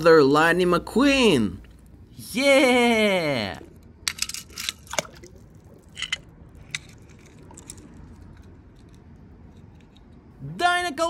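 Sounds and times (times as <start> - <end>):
toy cars clicking and scraping on stone: 3.7 - 5.0, 5.8 - 10.3.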